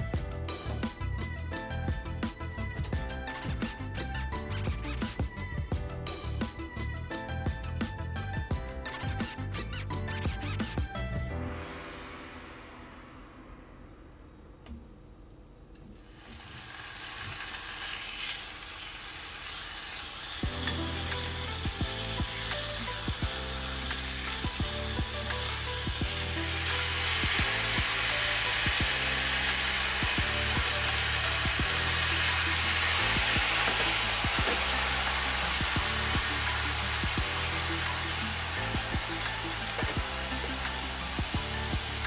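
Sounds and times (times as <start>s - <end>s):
background music: 0.0s - 14.5s, 20.3s - 42.0s
meat sizzling in a frying pan: 16.0s - 42.0s.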